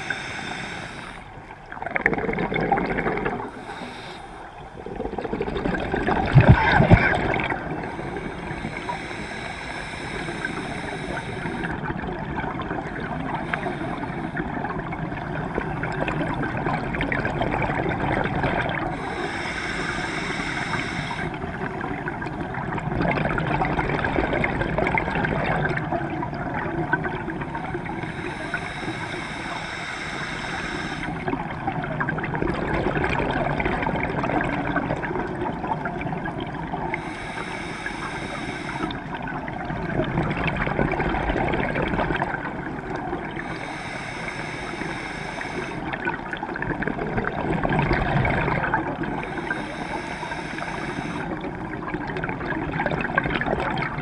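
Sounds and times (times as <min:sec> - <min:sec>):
regulator hissing inhalation: 0:00.0 - 0:01.3, 0:03.6 - 0:04.6, 0:07.8 - 0:11.8, 0:18.9 - 0:21.4, 0:28.0 - 0:31.2, 0:37.0 - 0:39.0, 0:43.4 - 0:45.9, 0:49.2 - 0:51.4
gurgling exhaled bubbles: 0:01.2 - 0:03.9, 0:04.5 - 0:19.2, 0:21.1 - 0:28.3, 0:31.1 - 0:37.1, 0:38.7 - 0:54.0.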